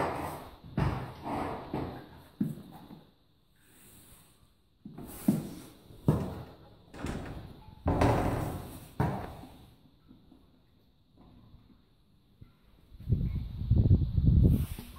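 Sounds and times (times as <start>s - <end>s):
horse knocking on wooden door: 7.1s - 9.5s.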